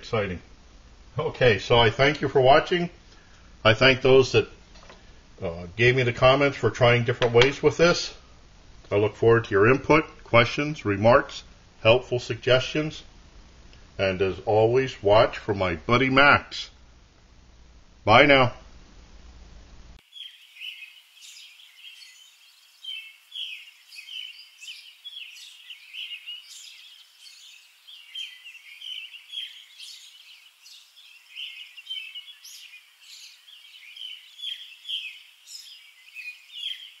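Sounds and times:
songbirds chirping and singing: 0:20.0 - 0:37.0.

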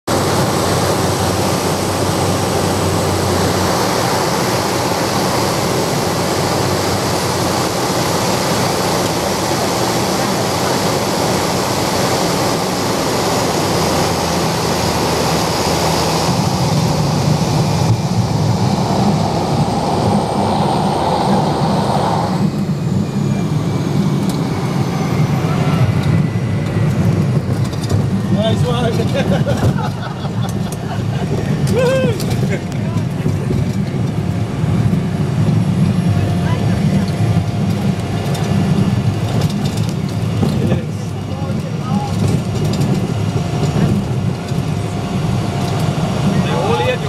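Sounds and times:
piston aircraft engine: 0:00.0 - 0:47.0
rushing air: 0:00.1 - 0:36.2
wheels rumbling on rough strip: 0:00.1 - 0:47.0.

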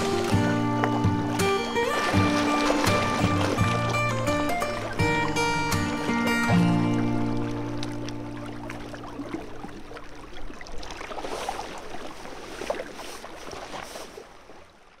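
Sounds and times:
background music: 0:00.0 - 0:09.1
small waves lapping: 0:00.0 - 0:15.0.

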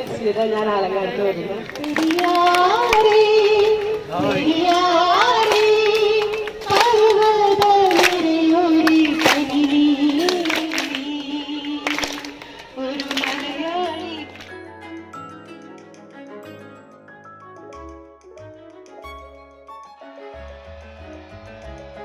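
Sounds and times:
woman singing a slow melody: 0:01.8 - 0:14.4.

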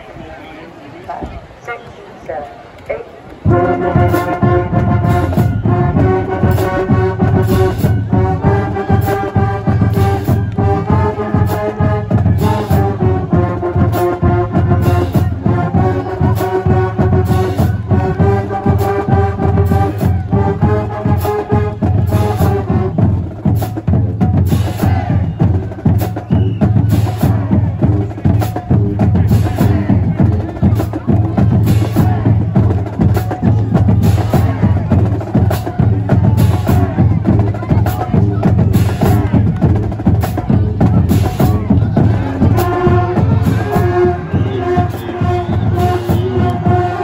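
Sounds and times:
drumline drum cadence: 0:01.0 - 0:47.0
brass section holding chords: 0:03.4 - 0:23.2, 0:41.1 - 0:47.0.

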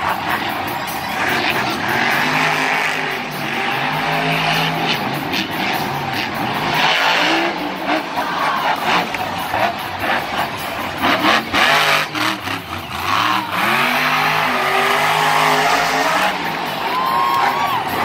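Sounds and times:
stadium crowd noise: 0:00.0 - 0:18.0
truck engine revving hard: 0:00.0 - 0:18.0.

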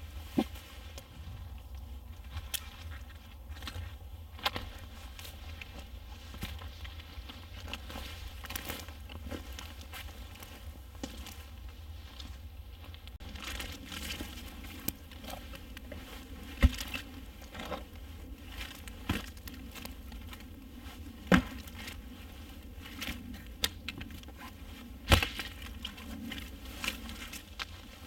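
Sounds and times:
wood rustling and scraping: 0:12.1 - 0:28.0.

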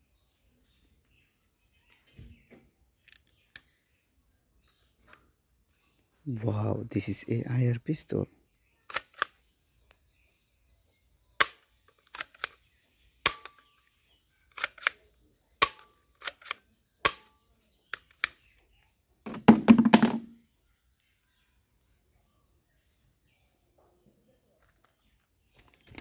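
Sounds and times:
toy pistol plastic clicks: 0:08.9 - 0:09.4, 0:11.4 - 0:12.6, 0:13.2 - 0:13.7, 0:14.5 - 0:15.0, 0:15.6 - 0:17.3, 0:17.9 - 0:18.5.

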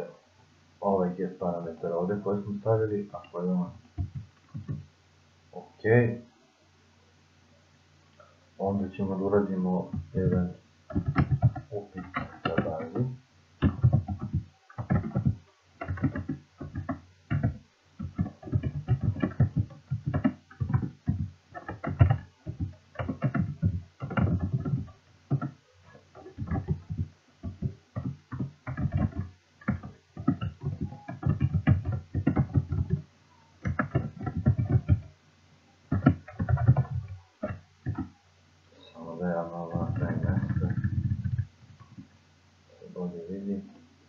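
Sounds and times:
typing on a computer keyboard: 0:04.0 - 0:04.8, 0:09.9 - 0:33.0, 0:33.6 - 0:35.1, 0:35.9 - 0:38.1.

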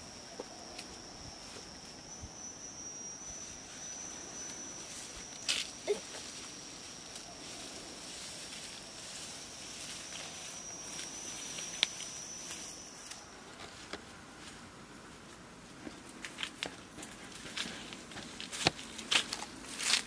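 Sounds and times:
high-pitched insect drone: 0:00.0 - 0:13.8
footsteps through grass: 0:03.3 - 0:20.0.

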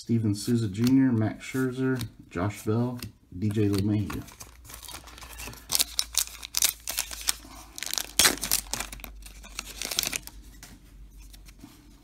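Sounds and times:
wrapper tearing and crinkling: 0:04.2 - 0:10.3.

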